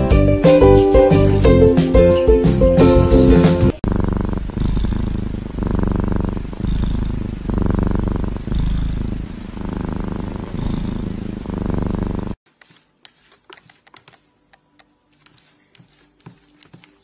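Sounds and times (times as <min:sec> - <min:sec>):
kitten purring loudly: 0:01.0 - 0:01.7, 0:03.0 - 0:12.4.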